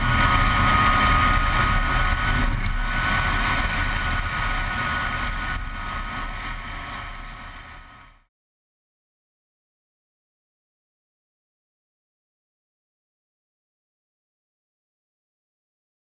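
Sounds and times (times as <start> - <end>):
electric motor whine: 0.0 - 8.2.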